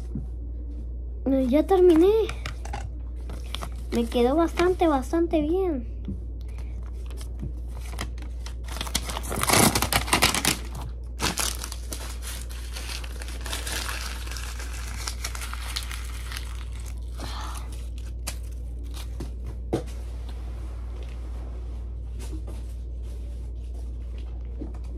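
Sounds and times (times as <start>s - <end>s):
steady low hum: 0.0s - 24.9s
paper crumpling: 3.2s - 4.7s, 6.8s - 19.2s.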